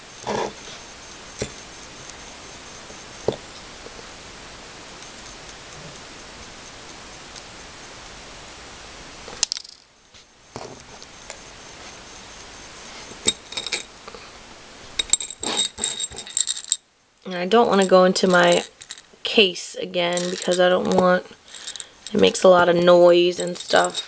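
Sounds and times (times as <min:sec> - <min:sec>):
steady low hiss: 0:00.0 - 0:24.0
beads clinking against glass: 0:13.2 - 0:13.9, 0:15.0 - 0:16.8, 0:17.7 - 0:19.1, 0:20.1 - 0:22.4, 0:23.2 - 0:24.0.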